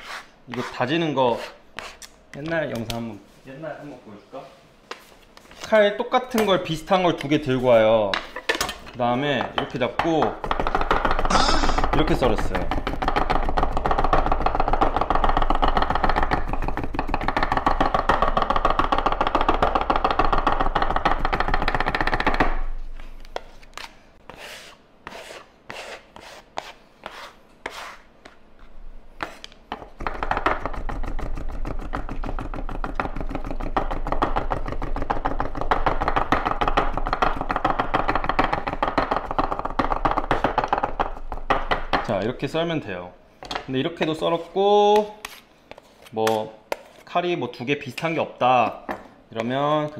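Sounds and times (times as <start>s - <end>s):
knives chopping on wooden board: 9.4s - 22.7s, 29.2s - 42.2s.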